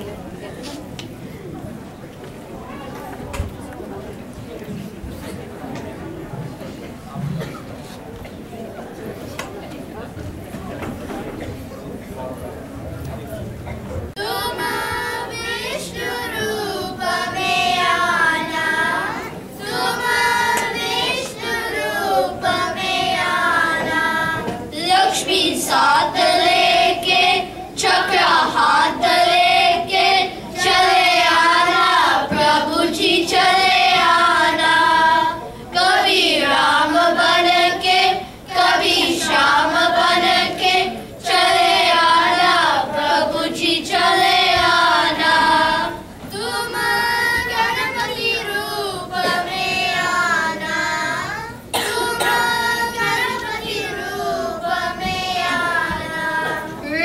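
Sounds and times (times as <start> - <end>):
children singing in chorus: 14.2 - 57.0.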